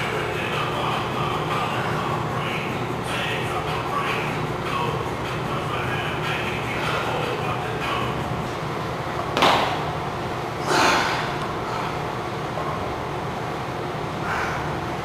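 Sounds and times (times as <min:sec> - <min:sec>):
room hum: 0:00.0 - 0:15.0
forceful breaths straining: 0:14.2 - 0:14.9.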